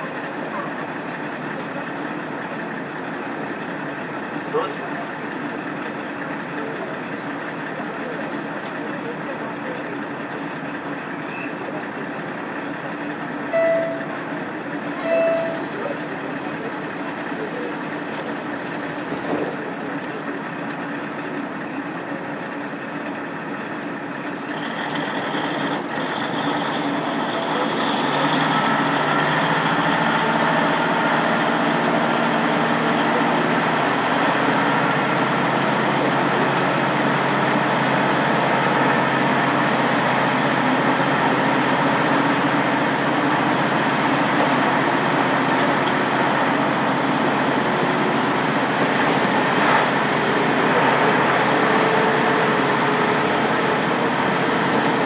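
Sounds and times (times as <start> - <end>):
railcar diesel engine running: 0.0 - 55.0
short beep: 13.5 - 14.1, 15.0 - 15.7.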